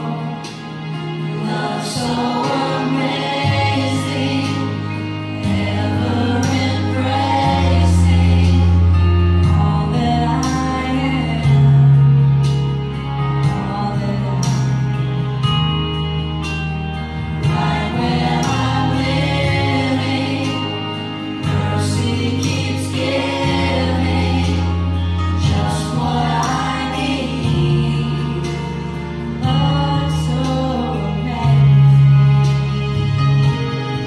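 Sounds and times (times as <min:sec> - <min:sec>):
voices singing along: 0:00.0 - 0:12.0, 0:17.3 - 0:32.0
percussion: 0:00.0 - 0:34.0
sustained bass notes: 0:00.0 - 0:34.0
woman singing into microphone: 0:01.4 - 0:12.4, 0:13.4 - 0:15.0, 0:17.4 - 0:32.3.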